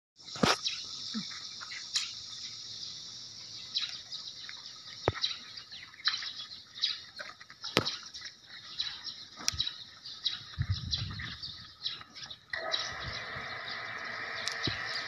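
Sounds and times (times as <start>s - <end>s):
high-pitched insect chorus: 0.2s - 15.0s
sharp clicks: 14.4s - 14.9s.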